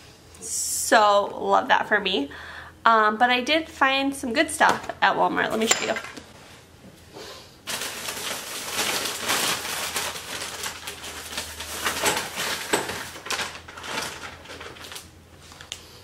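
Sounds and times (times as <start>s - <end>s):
plastic bags rustling and crinkling: 7.6s - 16.0s.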